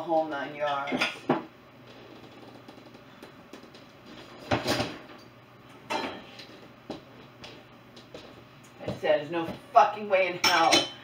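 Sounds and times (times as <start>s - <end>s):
dishes knocking and clinking: 4.4s - 5.1s, 5.9s - 6.4s, 10.4s - 11.0s.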